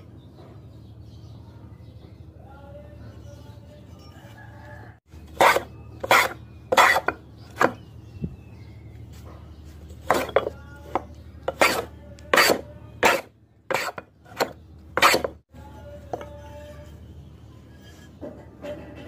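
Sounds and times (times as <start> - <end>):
hand plane shaving wood: 5.3 - 7.8, 10.0 - 15.4.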